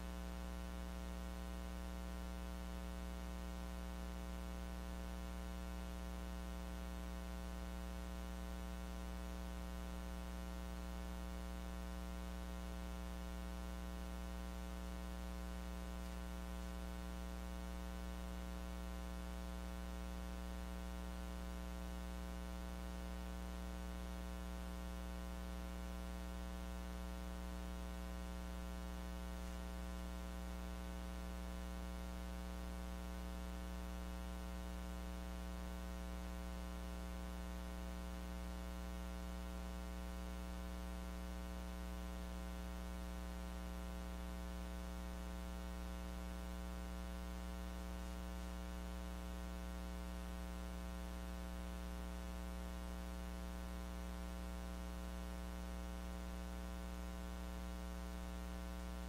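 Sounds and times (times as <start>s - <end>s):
electrical hum: 4.6s - 21.8s.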